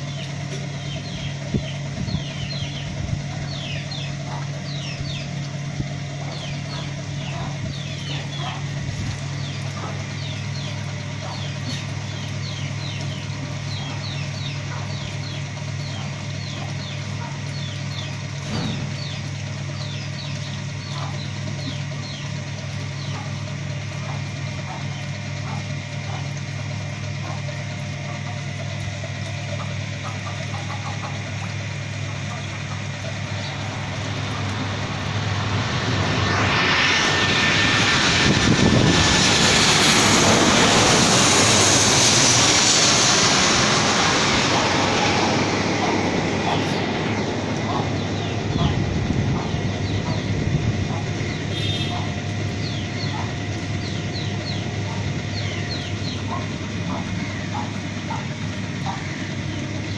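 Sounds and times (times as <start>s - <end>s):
low mechanical hum: 0.0s - 59.9s
chicks peeping: 0.8s - 5.3s, 6.2s - 8.6s, 9.4s - 19.2s, 19.8s - 22.2s, 29.6s - 31.5s, 45.8s - 50.3s, 51.8s - 58.2s.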